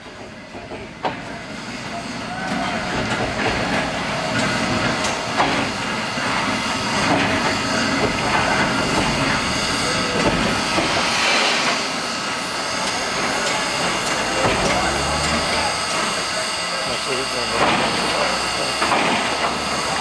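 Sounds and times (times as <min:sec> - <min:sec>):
steam train rumble and hiss: 0:00.0 - 0:20.0
train cars knocking and clanking: 0:00.0 - 0:20.0.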